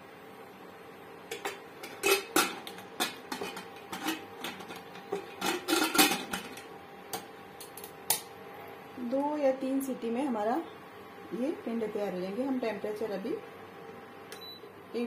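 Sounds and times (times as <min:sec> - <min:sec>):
pot lid clanking and clicking: 0:01.3 - 0:06.6.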